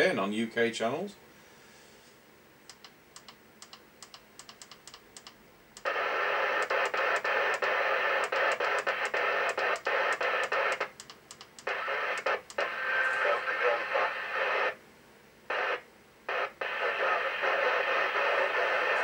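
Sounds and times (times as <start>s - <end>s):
radio static hiss: 5.8s - 11.0s, 11.6s - 14.8s, 15.5s - 19.0s.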